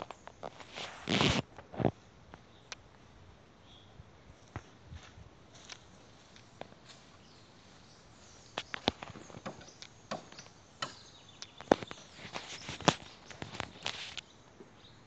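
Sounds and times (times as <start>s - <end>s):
footsteps crunching dry leaves: 5.0s - 9.4s.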